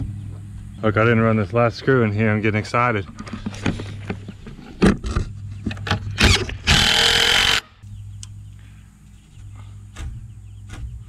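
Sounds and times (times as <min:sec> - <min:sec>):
cordless drill driving screw: 0:06.2 - 0:07.6.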